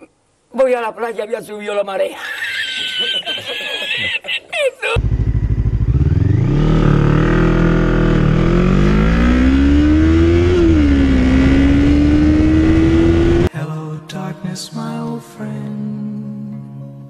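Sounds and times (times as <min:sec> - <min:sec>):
motorcycle engine accelerating: 0:05.0 - 0:13.5.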